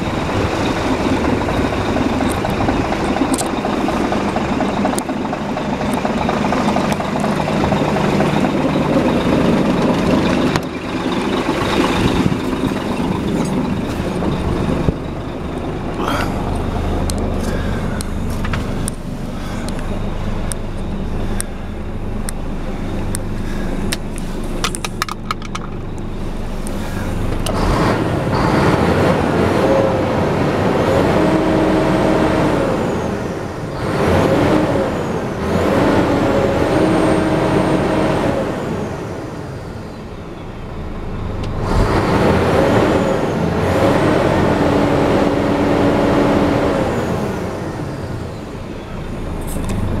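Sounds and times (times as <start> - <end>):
diesel engine revving: 0.0 - 50.0.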